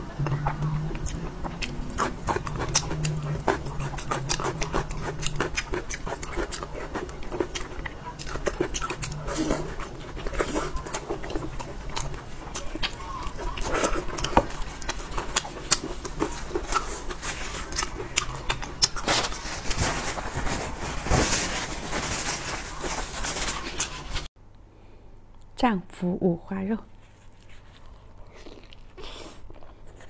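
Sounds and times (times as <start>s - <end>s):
wet chewing and lip-smacking: 0.0s - 19.3s.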